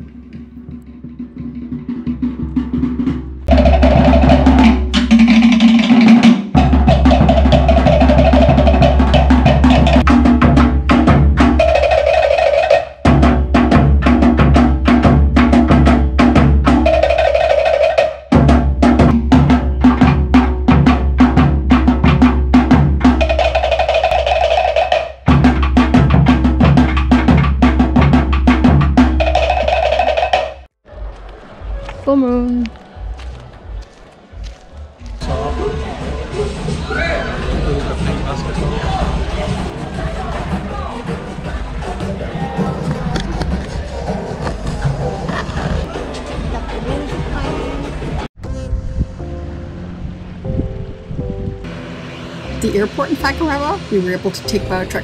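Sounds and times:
deep booming skin drum: 0.0s - 12.2s, 13.0s - 17.5s, 18.3s - 30.2s
wooden slit drums: 0.0s - 30.8s, 38.3s - 48.6s.

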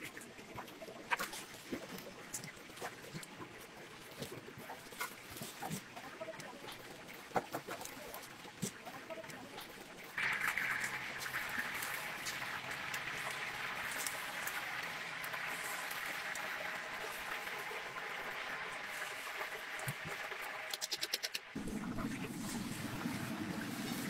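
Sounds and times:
oil sizzling with steady hiss: 3.5s - 20.8s.

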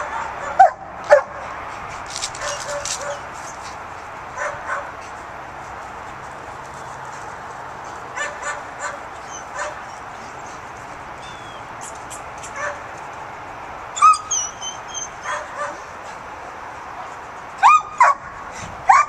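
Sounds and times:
dogs yapping and barking: 0.0s - 5.2s, 7.2s - 13.1s, 13.9s - 16.2s, 17.5s - 19.0s
dog yelp and whine: 9.2s - 10.0s, 14.0s - 15.8s.

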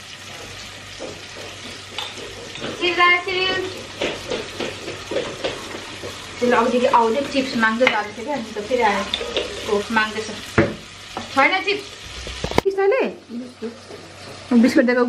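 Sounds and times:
food frying in a pan: 0.0s - 15.0s
spatula scraping a pan: 0.1s - 10.4s, 13.5s - 14.8s.

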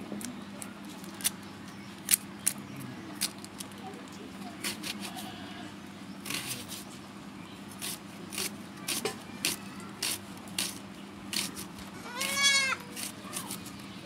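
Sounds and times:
scraping strokes: 4.6s - 5.4s, 6.2s - 7.0s, 7.7s - 13.8s
goat bleating: 5.0s - 5.7s, 11.9s - 12.8s.

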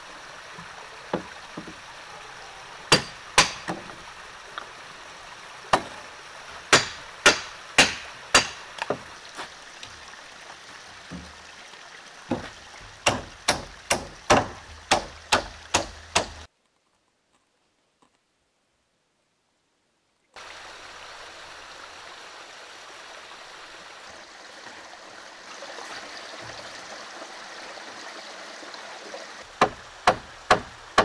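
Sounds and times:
stream rushing: 0.0s - 16.5s, 20.4s - 31.0s
hammer striking wood: 2.9s - 4.0s, 5.7s - 5.9s, 6.7s - 9.0s, 12.3s - 16.5s, 29.6s - 31.0s.

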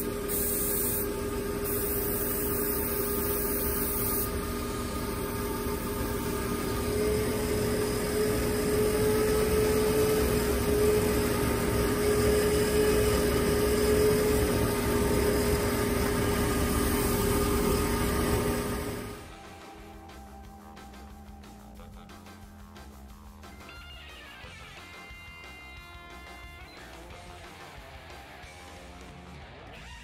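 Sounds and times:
air hiss: 0.0s - 4.4s
air compressor humming: 0.0s - 23.1s.

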